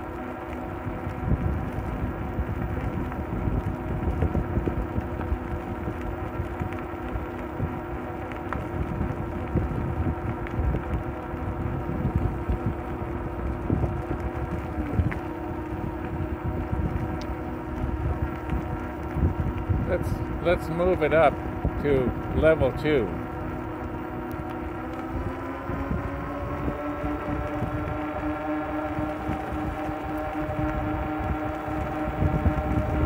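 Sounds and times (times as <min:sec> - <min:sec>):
electric bike motor whine: 0:00.0 - 0:33.0
wind noise on microphone: 0:00.7 - 0:33.0.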